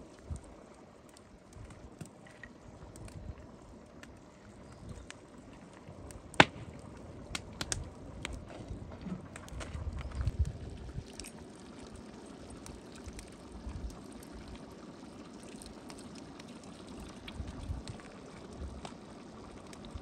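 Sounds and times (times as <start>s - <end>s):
faint steady hiss: 0.0s - 8.7s.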